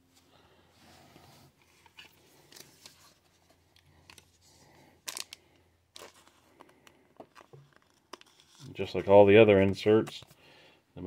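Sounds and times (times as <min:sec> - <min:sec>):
plastic sleeve crinkle: 0:01.8 - 0:09.4.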